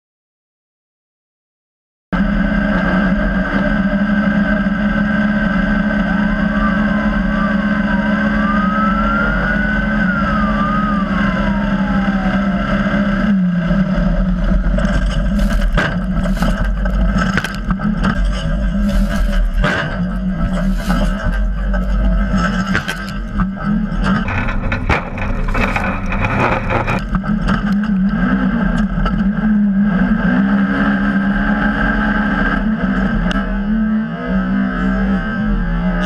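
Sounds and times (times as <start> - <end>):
engine at high revs: 2.2 - 36.0
knocks and rattles over rough ground: 14.2 - 29.3.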